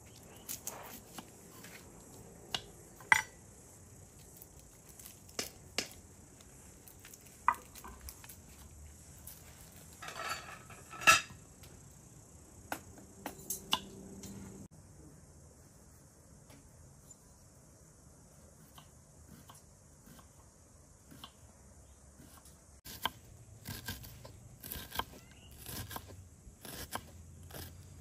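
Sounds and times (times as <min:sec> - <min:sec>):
kitchen utensils clinking: 0:10.0 - 0:11.4.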